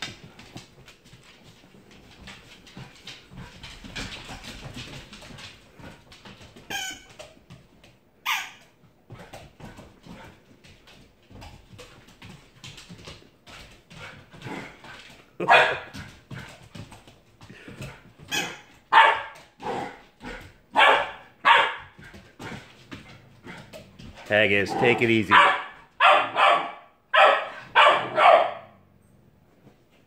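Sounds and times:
dog barking: 0:15.4 - 0:15.9, 0:18.3 - 0:19.8, 0:20.7 - 0:22.0, 0:25.3 - 0:28.8.

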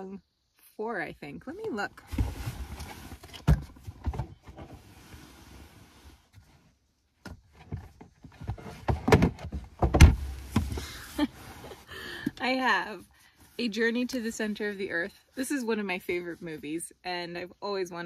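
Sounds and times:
knocks and clunks: 0:07.2 - 0:11.0.

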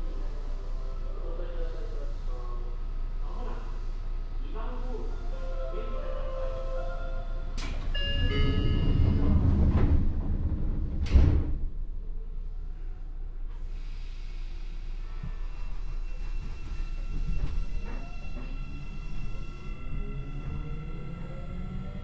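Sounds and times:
low hum from standing train: 0:00.0 - 0:22.0
train doors closing with a thud: 0:07.6 - 0:11.8, 0:15.1 - 0:19.4.

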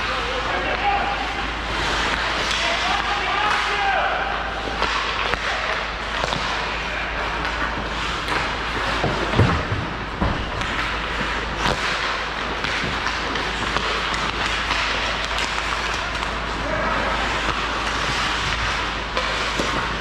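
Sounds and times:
sticks and puck knocking: 0:08.3 - 0:16.4, 0:17.2 - 0:20.0.

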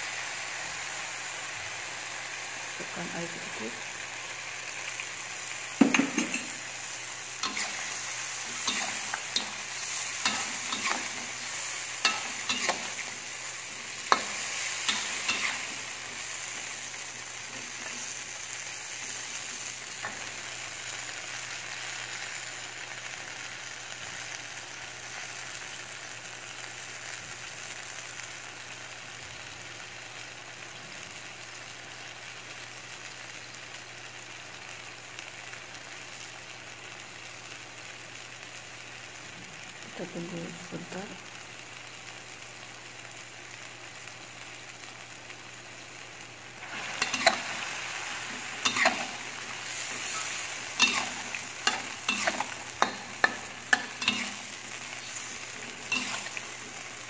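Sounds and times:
food sizzling in a wok: 0:00.0 - 0:57.0
metal spatula scraping pan: 0:07.4 - 0:11.4, 0:12.0 - 0:13.1, 0:14.1 - 0:15.8, 0:46.7 - 0:47.7, 0:48.4 - 0:56.7.

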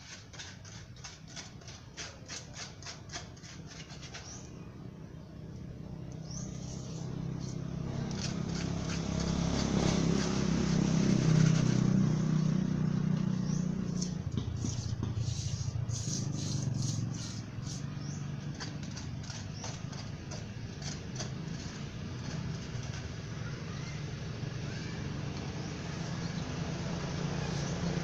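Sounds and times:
trowel scraping wet cement: 0:00.0 - 0:04.6, 0:06.4 - 0:12.2, 0:13.4 - 0:23.3
vehicle engine passing by: 0:04.2 - 0:28.0.

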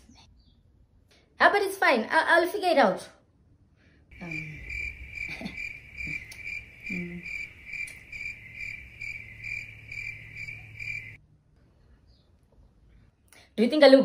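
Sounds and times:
cricket chirping: 0:04.1 - 0:11.2.

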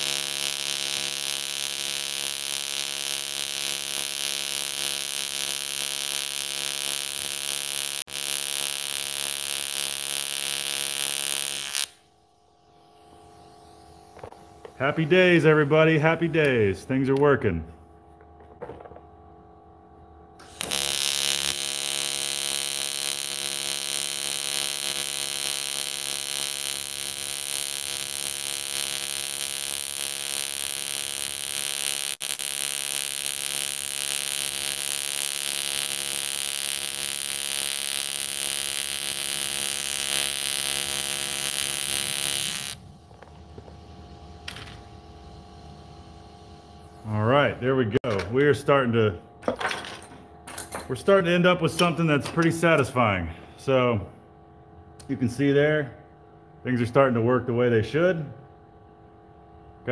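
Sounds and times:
welding arc buzzing: 0:00.0 - 0:16.8, 0:20.4 - 0:48.0.

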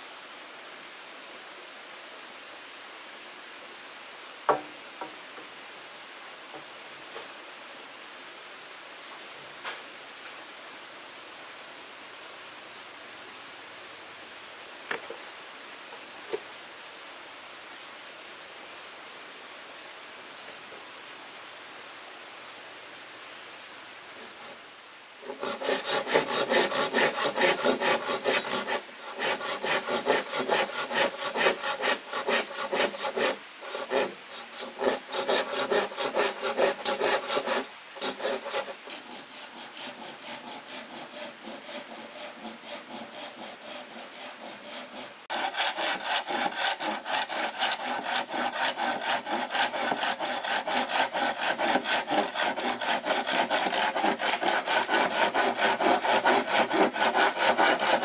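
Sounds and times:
hand saw cutting: 0:25.2 - 0:58.0.

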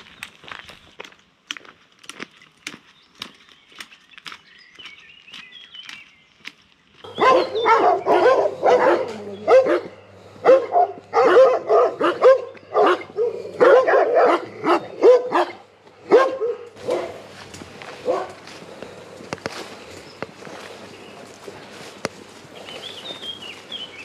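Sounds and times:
dogs barking: 0:07.1 - 0:18.6.

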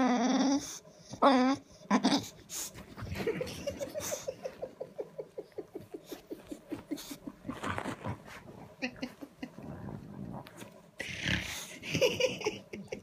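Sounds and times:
dog grumbling and whining: 0:00.0 - 0:02.4
dog whimper: 0:00.0 - 0:02.4.

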